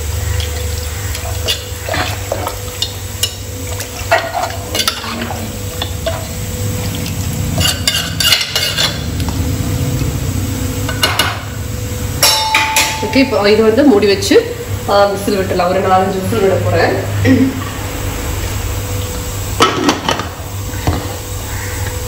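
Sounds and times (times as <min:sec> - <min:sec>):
low steady hum: 0:00.0 - 0:22.0
spoon scraping and knocking pot: 0:07.6 - 0:09.1.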